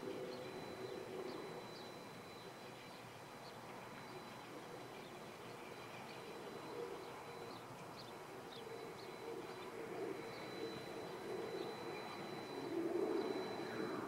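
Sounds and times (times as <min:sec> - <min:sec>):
low bird cooing: 0:00.0 - 0:14.0
steady thin high tone: 0:00.0 - 0:14.0.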